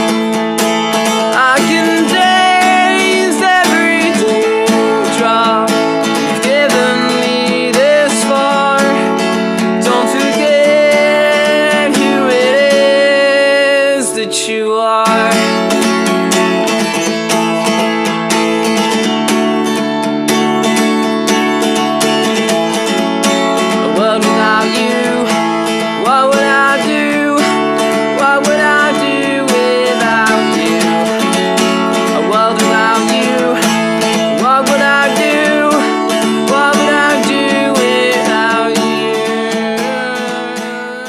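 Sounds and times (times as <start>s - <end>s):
song with acoustic guitar: 0.0s - 41.0s.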